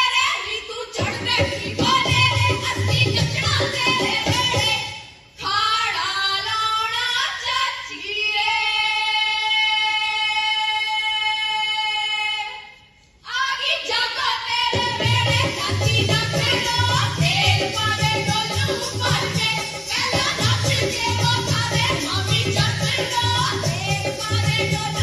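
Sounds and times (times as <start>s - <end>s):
folk music with drums: 0.1s - 5.5s, 14.5s - 25.0s.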